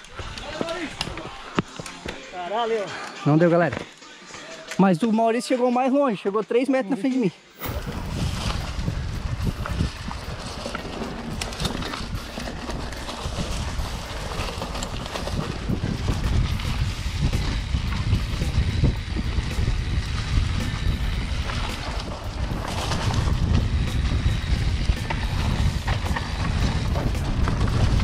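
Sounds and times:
bike tyres rumbling on dirt: 7.6s - 28.0s.

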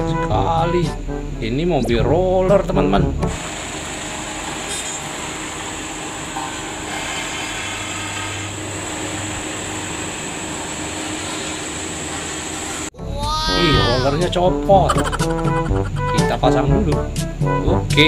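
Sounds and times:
road roller engine droning: 3.3s - 13.0s.

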